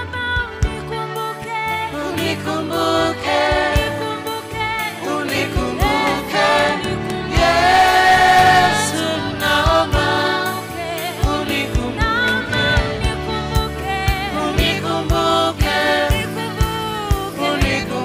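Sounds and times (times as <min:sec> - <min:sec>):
woman singing lead vocal: 0:00.0 - 0:18.0
band playing: 0:01.9 - 0:18.0
steady drum beat: 0:03.3 - 0:04.2, 0:05.2 - 0:18.0.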